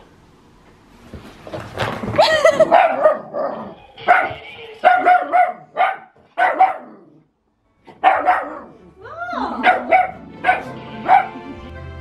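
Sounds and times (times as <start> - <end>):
small dogs barking: 2.7 - 7.1, 8.0 - 8.8, 9.6 - 11.4.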